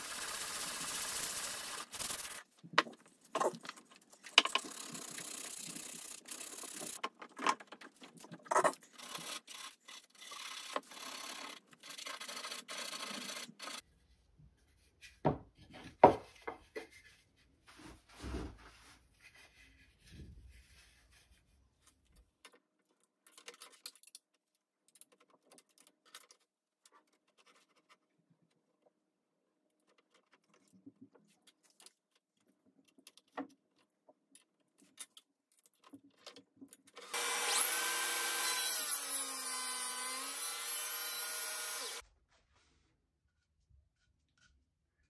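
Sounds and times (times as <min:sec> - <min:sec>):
sandpaper rubbing wood: 0:00.0 - 0:02.4.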